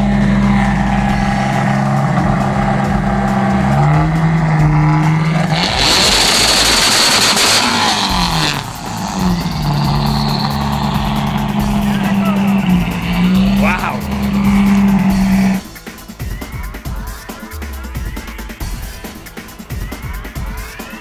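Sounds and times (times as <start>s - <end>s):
engine running: 0.0s - 15.8s
loud hissing noise: 0.0s - 15.9s.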